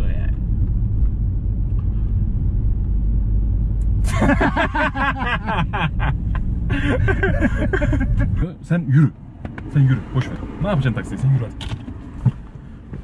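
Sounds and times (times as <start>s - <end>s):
car cabin road rumble: 0.0s - 13.0s
men laughing hard: 4.0s - 8.4s.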